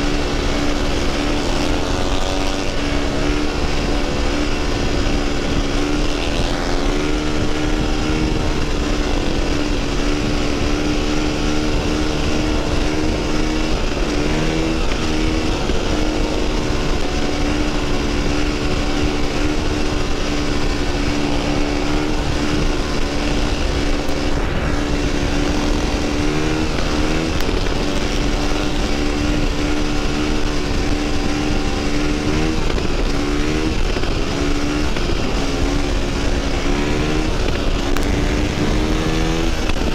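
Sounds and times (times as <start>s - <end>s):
dirt bike engine running: 0.0s - 39.9s
wind rush on microphone: 0.0s - 39.9s.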